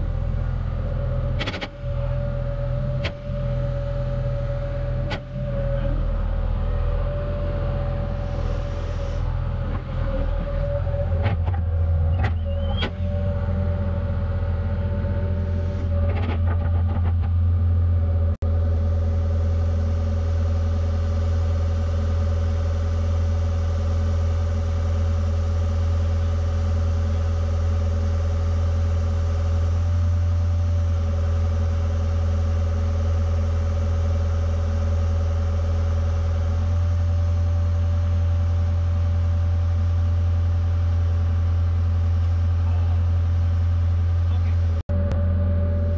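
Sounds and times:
high-pitched whine: 0.0 - 24.2
excavator diesel engine running: 0.0 - 45.9.

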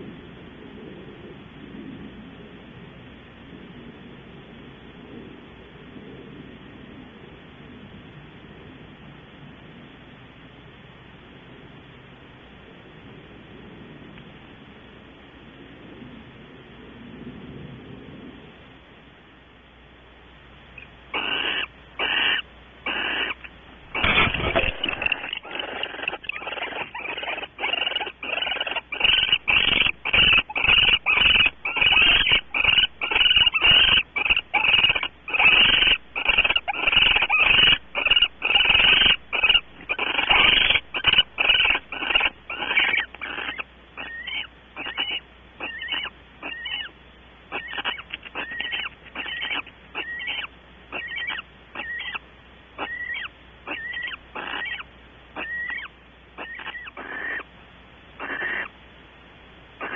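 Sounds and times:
owls rasping hiss calls: 20.7 - 58.9.

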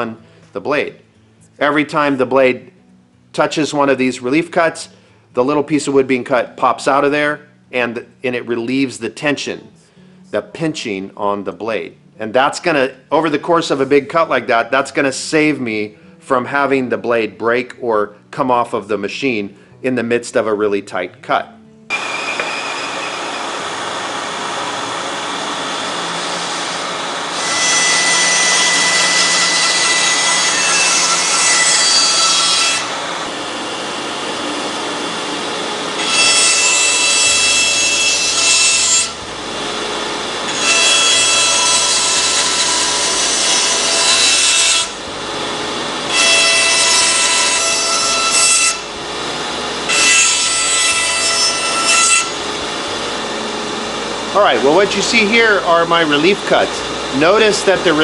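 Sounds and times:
band saw cutting wood: 21.9 - 58.0
band saw running: 21.9 - 58.0.

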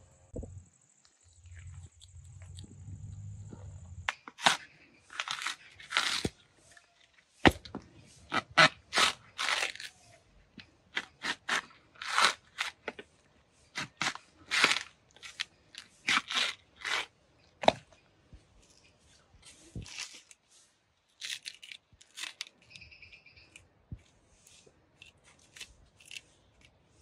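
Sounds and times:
coconut husk tearing on spike: 4.1 - 6.4, 8.3 - 10.0, 10.9 - 13.0, 13.8 - 17.1, 21.2 - 22.8, 25.0 - 26.8.

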